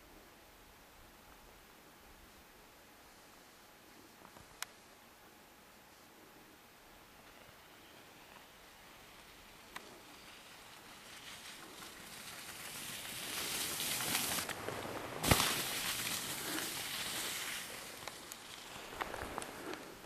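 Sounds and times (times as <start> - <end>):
skis scraping over snow: 7.2 - 20.0.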